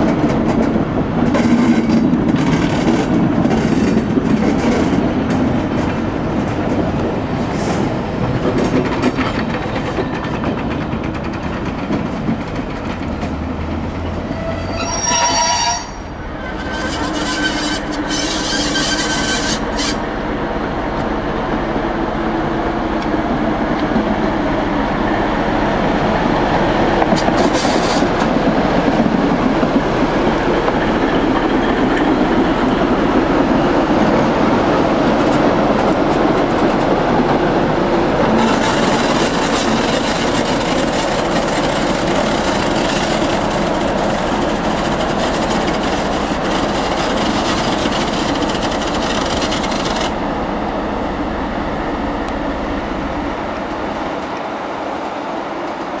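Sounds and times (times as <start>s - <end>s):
locomotive engine drone: 12.4s - 56.0s
high squeal: 14.2s - 20.0s.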